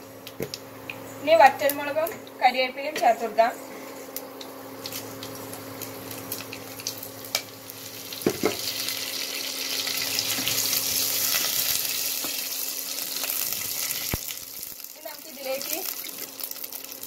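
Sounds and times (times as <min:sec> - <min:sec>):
steady low hum: 0:00.0 - 0:16.0
hot oil sizzling in a pot: 0:04.4 - 0:17.0.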